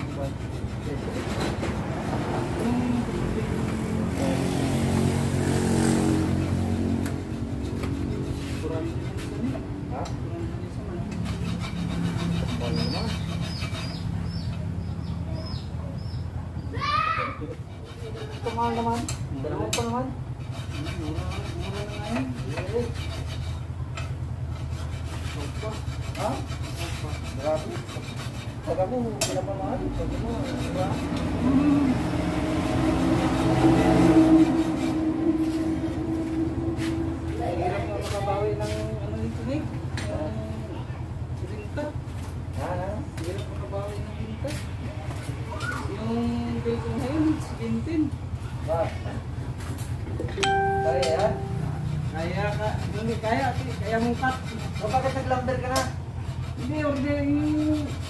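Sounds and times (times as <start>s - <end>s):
hand tool scraping metal: 0.0s - 1.8s, 5.8s - 10.2s, 10.8s - 14.7s, 17.6s - 31.8s, 50.4s - 58.0s.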